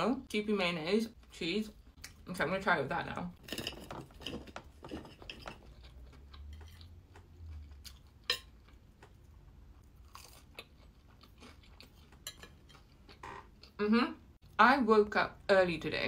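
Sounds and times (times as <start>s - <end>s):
crunchy bite and chewing: 9.8s - 12.0s.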